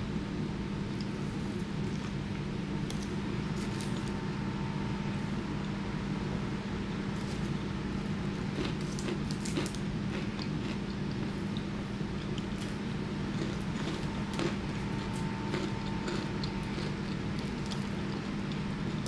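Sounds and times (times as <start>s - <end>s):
steady low hum: 0.0s - 19.0s
crisp crunches of chewing: 2.8s - 4.2s, 7.2s - 19.0s.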